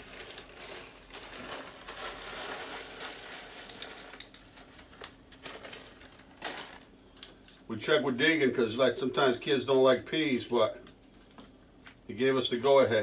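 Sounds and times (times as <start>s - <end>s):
bag crinkling: 0.0s - 6.9s
peas pattering into a skillet: 1.8s - 5.0s.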